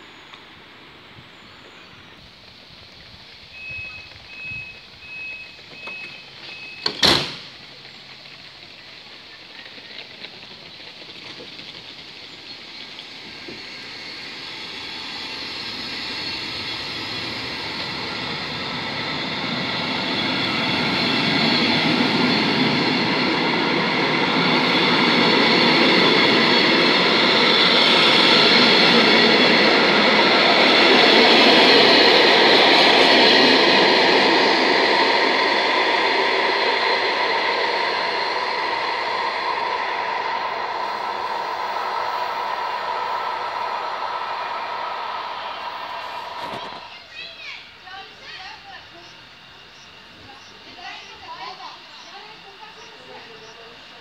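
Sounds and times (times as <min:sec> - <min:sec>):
train rolling: 0:00.0 - 0:54.0
short high warning beeps: 0:03.6 - 0:07.0
train door banging shut: 0:05.7 - 0:07.5.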